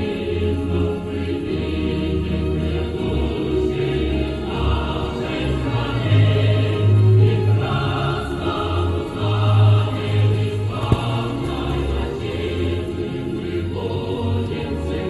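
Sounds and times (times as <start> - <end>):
choir singing: 0.0 - 15.0
deep bass notes: 10.7 - 13.2.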